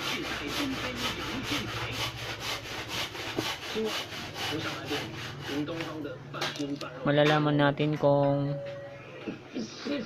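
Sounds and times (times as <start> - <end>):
rhythmic rasping: 0.0 - 7.0.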